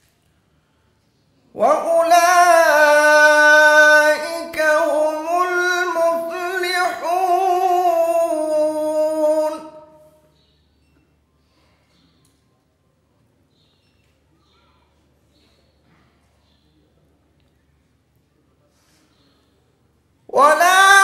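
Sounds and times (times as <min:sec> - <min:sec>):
man reciting melodically: 0:01.5 - 0:10.4, 0:20.3 - 0:21.0.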